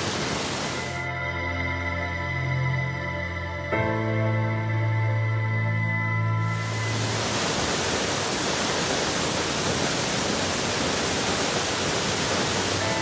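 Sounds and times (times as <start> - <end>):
waterfall rushing over rocks: 0.0 - 1.0, 6.5 - 13.0.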